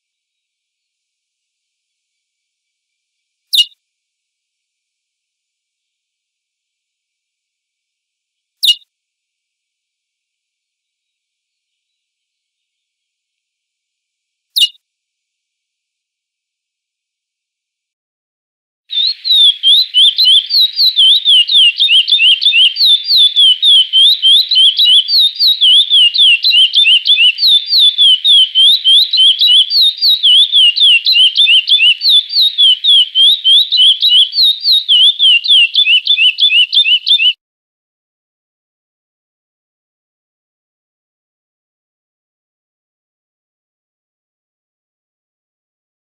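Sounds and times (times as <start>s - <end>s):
finch singing whistled notes: 3.5s - 3.8s, 8.6s - 8.8s, 14.6s - 14.8s, 18.9s - 37.4s.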